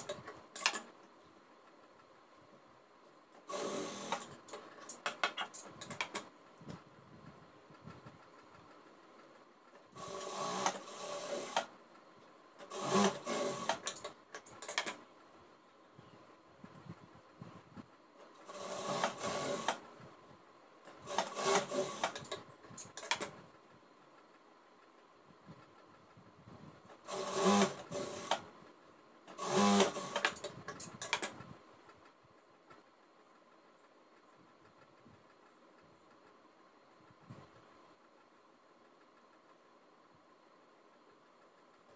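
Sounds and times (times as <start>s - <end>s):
sewing machine stitching: 0.0s - 1.0s, 3.4s - 6.3s, 9.7s - 11.8s, 12.6s - 15.0s, 18.2s - 19.9s, 20.9s - 23.4s, 26.9s - 28.5s, 29.3s - 31.4s.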